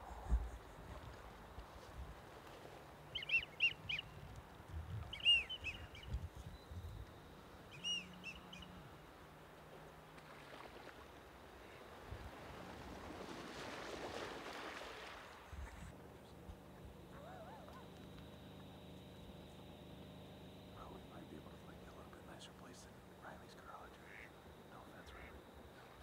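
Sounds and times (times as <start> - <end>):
ducks calling in flight: 23.4 - 26.0.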